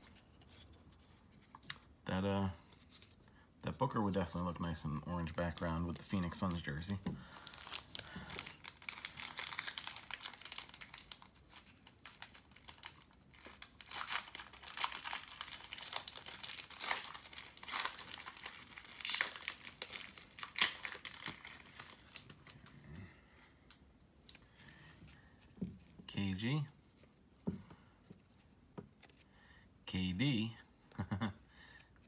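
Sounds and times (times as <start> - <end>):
foil wrapper crinkling: 5.1 - 22.6.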